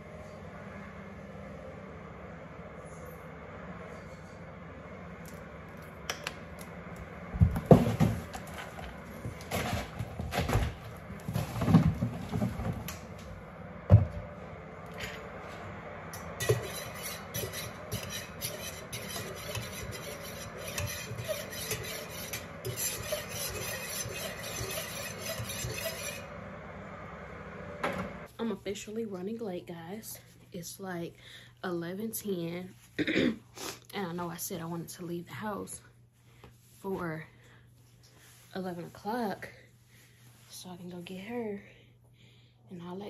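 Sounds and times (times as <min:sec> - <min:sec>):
spoon stirring in metal mug: 0:16.2 - 0:26.3.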